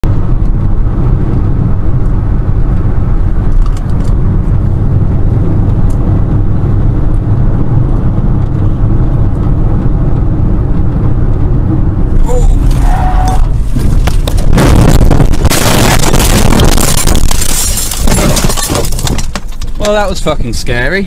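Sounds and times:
car engine and road noise: 0:00.0 - 0:21.0.

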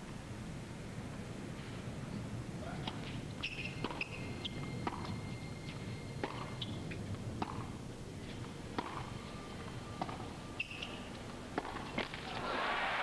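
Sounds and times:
rackets hitting tennis ball: 0:02.8 - 0:04.2, 0:06.2 - 0:07.8, 0:08.7 - 0:09.2, 0:09.9 - 0:12.9.

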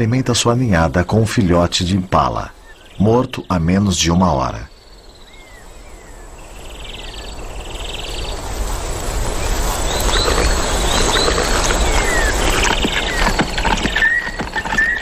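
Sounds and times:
birds calling: 0:00.0 - 0:15.0
rustling noise: 0:08.4 - 0:15.0.

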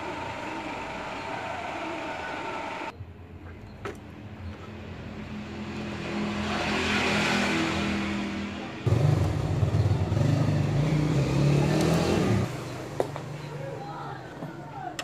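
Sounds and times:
vehicle engine running: 0:00.0 - 0:02.9, 0:08.8 - 0:13.5.

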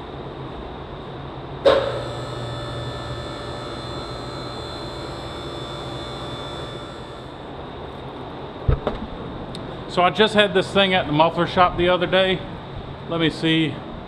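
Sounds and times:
hydraulic pump motor whining: 0:01.7 - 0:07.5
low hum: 0:01.7 - 0:07.7.

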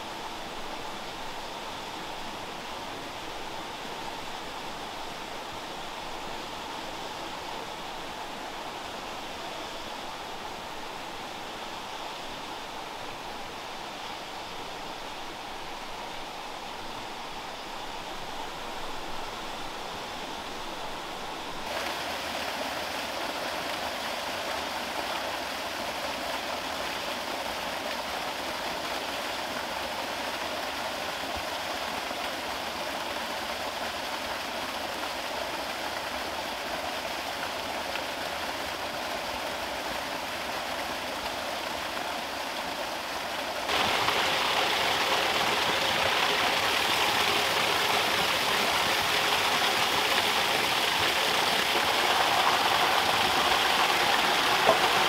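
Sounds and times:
water pouring into a pond: 0:21.6 - 0:55.0
water splashing from a bamboo pipe: 0:43.7 - 0:55.0.

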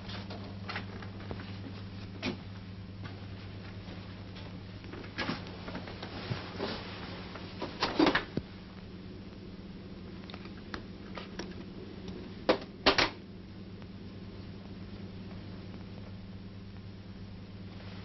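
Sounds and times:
steady low hum: 0:00.0 - 0:18.0
sharp clicks and knocks: 0:10.2 - 0:13.2.

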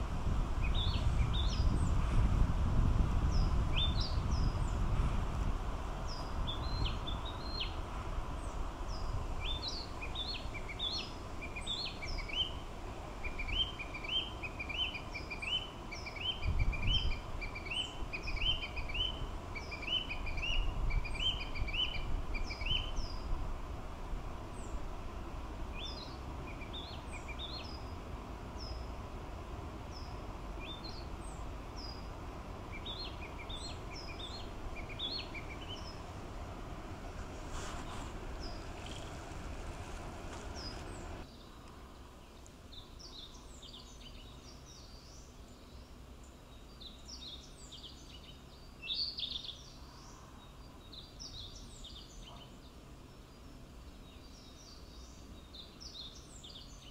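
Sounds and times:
bird singing high whistled notes: 0:00.6 - 0:02.0, 0:03.3 - 0:04.8, 0:06.1 - 0:07.8, 0:08.4 - 0:12.6, 0:13.2 - 0:23.3, 0:32.7 - 0:36.0
low background rumble: 0:15.1 - 0:43.6.

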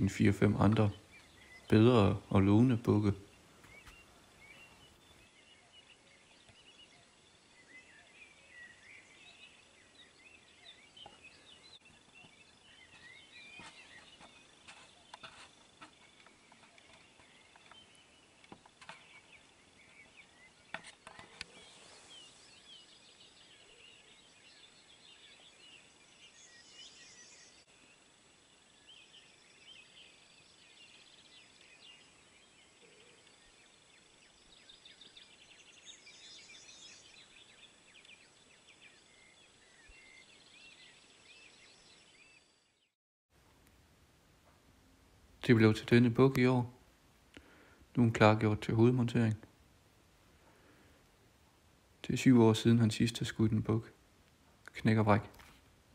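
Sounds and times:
birdsong chirps and trills: 0:00.0 - 0:43.0.

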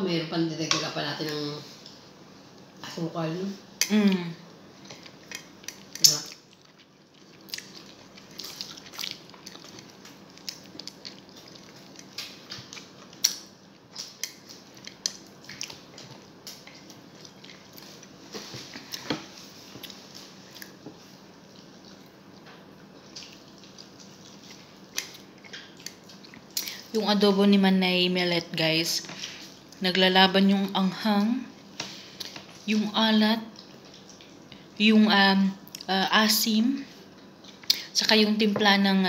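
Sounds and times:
chewing with wet mouth clicks: 0:04.8 - 0:19.1, 0:19.8 - 0:26.9, 0:33.5 - 0:34.6.

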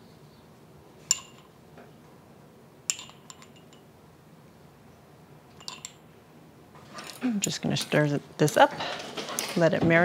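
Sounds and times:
metal chopsticks clinking glass jar: 0:02.9 - 0:03.8, 0:05.6 - 0:06.0.

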